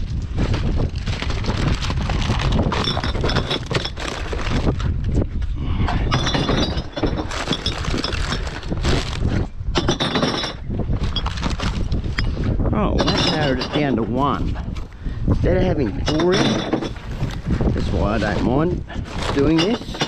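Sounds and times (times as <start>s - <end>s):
constant low rumble: 0.0s - 20.0s
glass bottles clinking: 2.6s - 4.2s, 6.0s - 8.8s, 9.7s - 11.6s, 12.2s - 14.3s, 16.0s - 17.1s, 19.2s - 20.0s.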